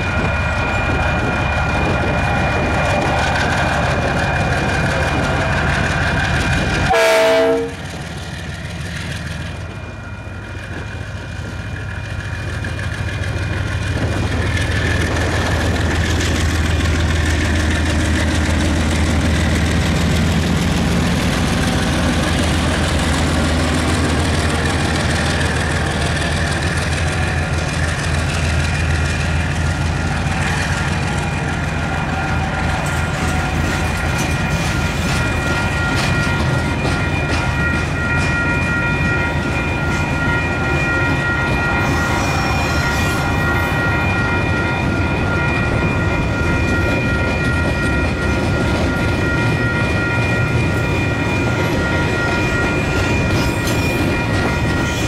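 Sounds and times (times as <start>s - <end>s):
diesel locomotive engines rumbling: 0.0s - 55.0s
locomotive horn: 6.8s - 8.0s
freight wagons rolling on rails: 10.6s - 55.0s.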